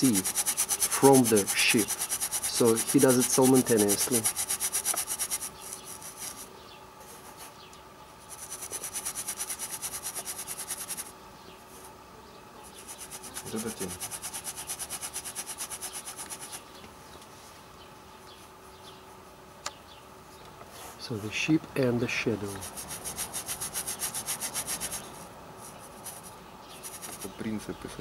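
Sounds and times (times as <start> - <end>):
bristle brush scrubbing canvas: 0.0 - 6.5, 8.2 - 11.1, 12.7 - 16.6, 22.5 - 27.4.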